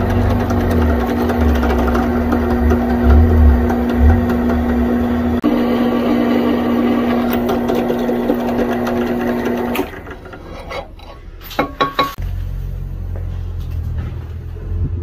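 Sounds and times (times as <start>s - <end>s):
low machine hum: 0.0s - 11.5s.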